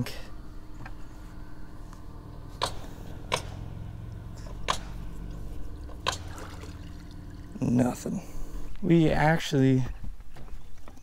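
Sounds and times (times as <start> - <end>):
low steady hum: 0.0 - 11.0
sharp knocks: 2.6 - 3.7, 4.4 - 5.1, 5.8 - 6.6.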